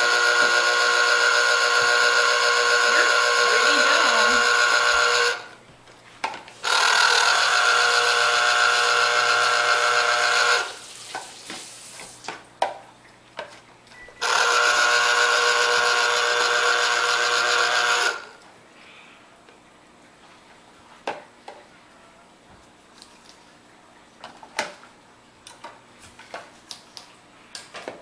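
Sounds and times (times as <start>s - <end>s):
juicer motor whine: 0.0s - 5.6s, 6.6s - 11.2s, 14.2s - 18.4s.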